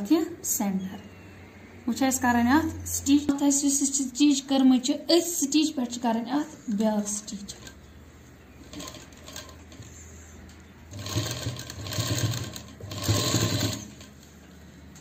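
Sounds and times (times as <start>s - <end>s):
low steady hum: 0.0s - 15.0s
sewing machine stitching: 8.6s - 10.0s, 10.9s - 14.2s.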